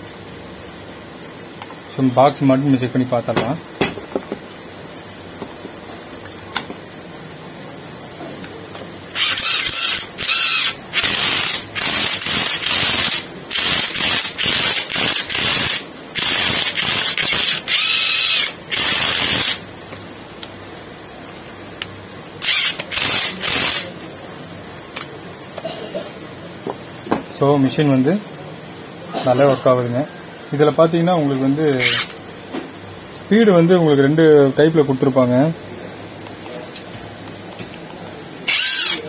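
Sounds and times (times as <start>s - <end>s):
impact wrench motor whirring: 9.1s - 19.6s, 22.4s - 23.9s, 31.8s - 32.2s, 38.4s - 39.0s.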